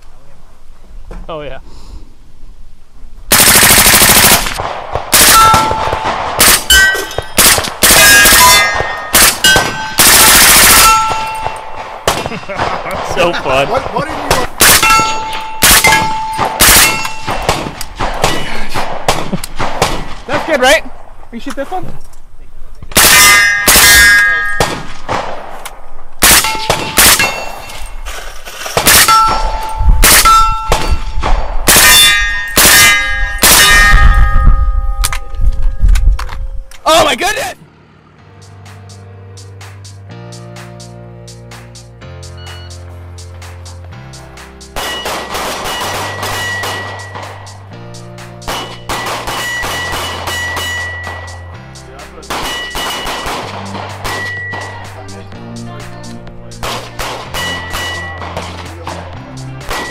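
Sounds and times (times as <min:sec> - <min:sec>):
rifle shots: 0:03.3 - 0:20.5, 0:22.9 - 0:25.6, 0:26.2 - 0:27.6, 0:28.7 - 0:34.1, 0:44.8 - 0:47.4, 0:48.4 - 0:51.3, 0:52.3 - 0:54.3
steel targets ringing: 0:05.2 - 0:12.6, 0:14.6 - 0:17.5, 0:23.0 - 0:25.0, 0:26.2 - 0:28.1, 0:28.8 - 0:35.4, 0:44.8 - 0:47.6, 0:48.4 - 0:51.6, 0:52.3 - 0:54.9, 0:57.2 - 0:58.4, 0:59.6 - 0:59.9.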